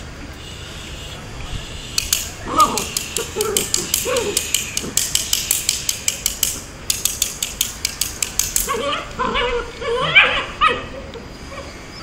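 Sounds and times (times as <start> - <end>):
quick even ticking: 1.9 - 8.7
puppy yipping and whining: 8.7 - 12.0.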